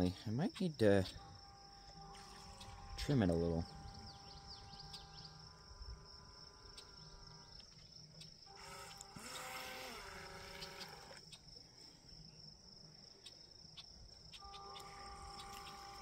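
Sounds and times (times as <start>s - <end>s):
high insect trill: 0.0s - 16.0s
toy boat motor whining: 1.4s - 5.9s, 8.4s - 11.2s, 14.4s - 16.0s.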